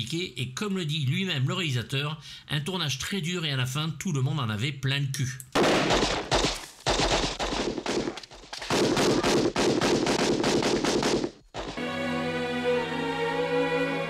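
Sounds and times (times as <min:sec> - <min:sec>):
automatic gunfire bursts: 0:05.6 - 0:11.4
music with held notes: 0:11.8 - 0:14.0.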